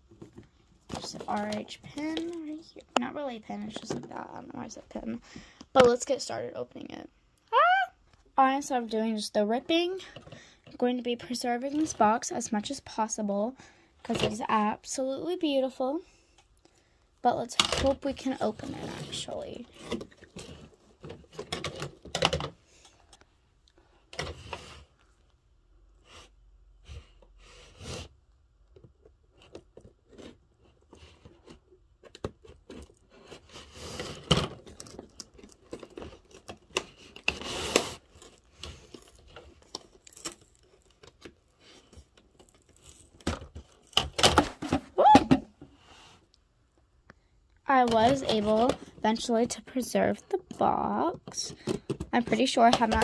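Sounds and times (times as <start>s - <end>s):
cardboard tearing: 32.8s - 41.0s.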